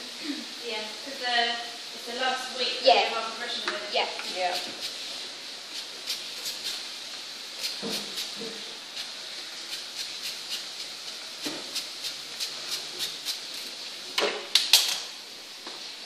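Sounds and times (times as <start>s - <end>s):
spray bottle squirts: 5.8s - 6.9s, 7.6s - 13.6s.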